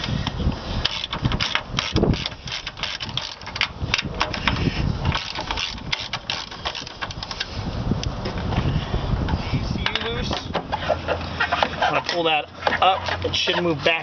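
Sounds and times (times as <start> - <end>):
hand ratchet clicking: 0.0 - 7.5.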